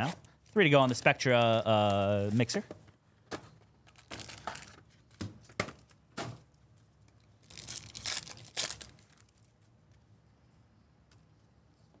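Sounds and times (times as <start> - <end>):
foil wrapper crinkling and tearing: 3.8 - 4.8, 7.4 - 9.4.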